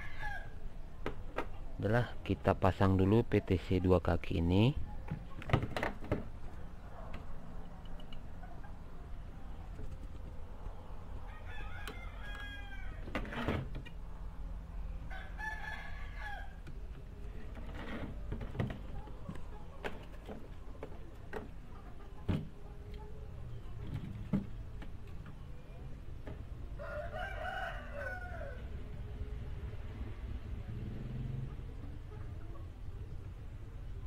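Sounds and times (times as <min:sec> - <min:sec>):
rooster crowing: 0:11.3 - 0:13.1, 0:15.1 - 0:16.6, 0:26.8 - 0:28.7.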